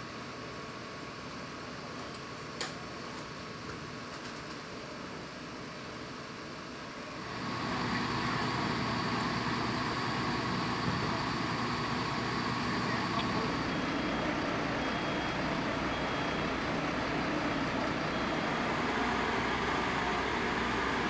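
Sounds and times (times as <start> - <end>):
fire engines running: 0.0 - 21.0
faint voices: 7.6 - 15.1.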